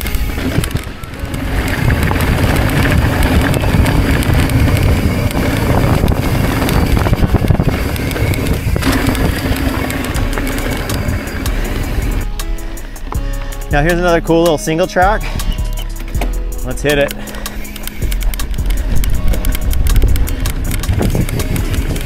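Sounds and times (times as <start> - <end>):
wind buffeting microphone: 0.0 - 13.1, 17.9 - 22.0
bike tyres rolling on dirt: 0.0 - 16.0, 16.7 - 22.0.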